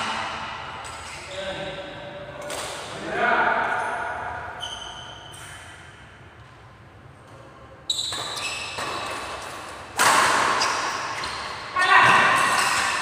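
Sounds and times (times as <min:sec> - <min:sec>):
racket hitting shuttlecock: 0:08.1 - 0:13.0.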